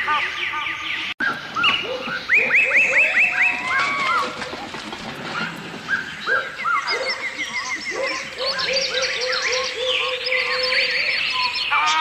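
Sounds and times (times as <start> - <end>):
repeated low arching bird notes: 0.0 - 12.0
high bird chirps and whistles: 0.3 - 3.7, 5.9 - 12.0.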